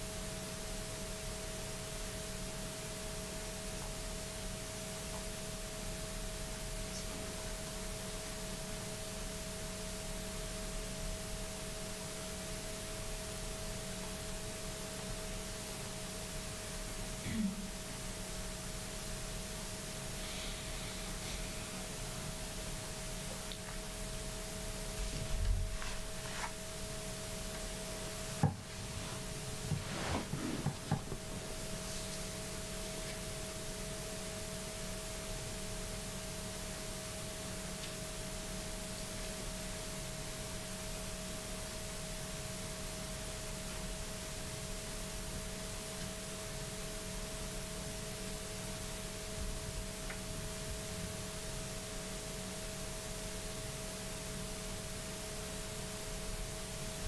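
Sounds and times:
faint hum: 0.0 - 57.0
steady hiss: 0.0 - 57.0
soft knocks and rubs: 28.5 - 32.2.

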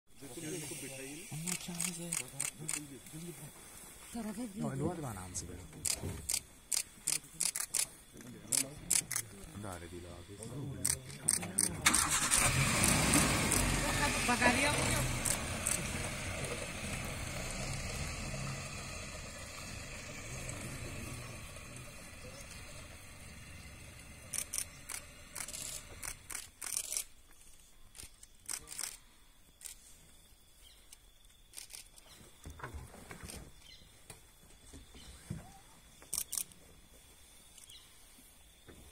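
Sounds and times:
vehicle engine idling: 11.8 - 27.0
camera shutter clicks: 24.3 - 27.1.

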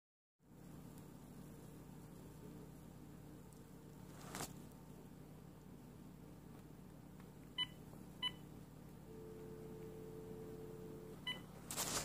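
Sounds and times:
faint steady electronic tone: 4.8 - 11.7.

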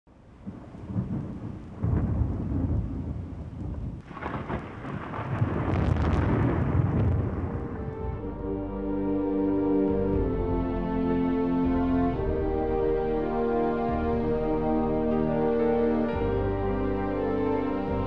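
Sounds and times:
thunder rumbling: 0.1 - 9.0
sharp thunder cracks: 0.4 - 8.3
music: 7.5 - 18.0.

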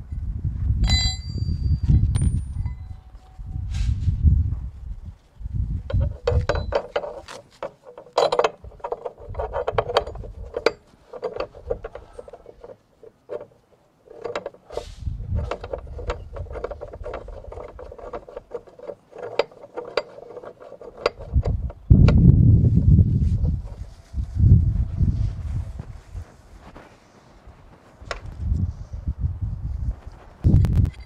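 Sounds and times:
metal shackles clinking: 0.8 - 3.4, 5.9 - 21.8
low rumble: 22.1 - 26.3.

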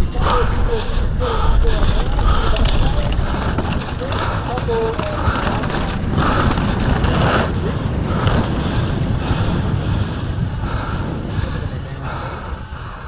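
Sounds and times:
tyre noise on dirt: 0.0 - 12.8
bike clicks and rattles: 0.0 - 13.0
wind buffeting microphone: 0.0 - 13.0.

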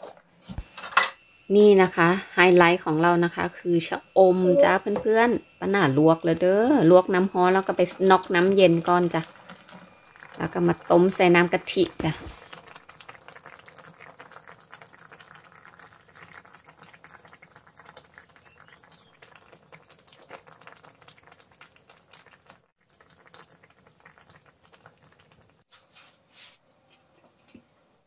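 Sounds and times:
curry bubbling in a pan: 4.9 - 25.7.

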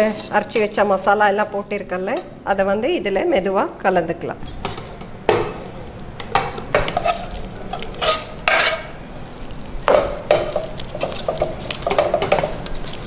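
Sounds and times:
metal ladle scraping thick rice: 8.0 - 8.9.

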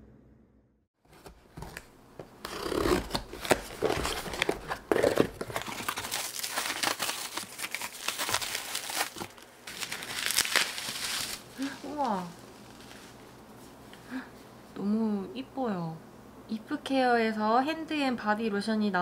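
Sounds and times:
bubble wrap and cardboard rustling: 1.0 - 13.8
packing tape tearing: 1.2 - 13.2.

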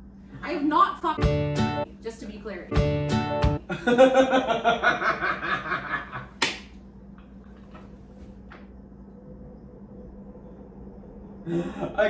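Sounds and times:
hearty laughter: 3.7 - 6.4, 11.4 - 12.0
hand slap: 6.4 - 6.8.

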